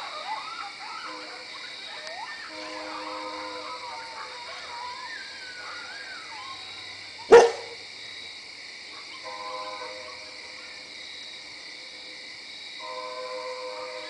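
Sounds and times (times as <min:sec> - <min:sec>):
coyotes howling and yipping: 0:00.0 - 0:08.2.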